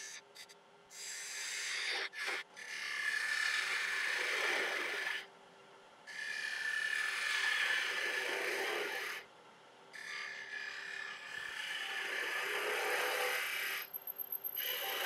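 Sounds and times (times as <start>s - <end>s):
lathe tool cutting wood hiss: 6.1s - 9.2s, 10.0s - 13.9s, 14.6s - 15.0s.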